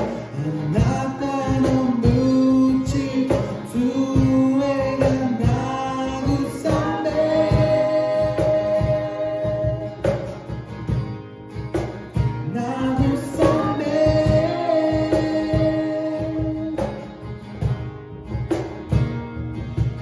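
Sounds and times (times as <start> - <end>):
man and woman singing together: 0.0 - 10.3, 12.4 - 17.1
strummed acoustic guitars: 0.0 - 20.0.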